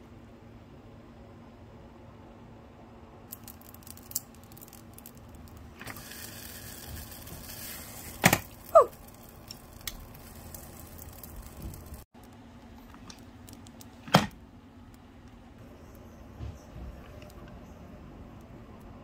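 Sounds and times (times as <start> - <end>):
noodles hissing on hot plates: 5.8 - 12.1.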